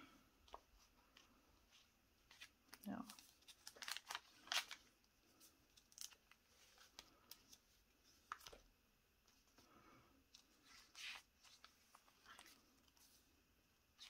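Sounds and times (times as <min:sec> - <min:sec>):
paper pages rustling: 0:00.4 - 0:08.7, 0:10.3 - 0:13.3.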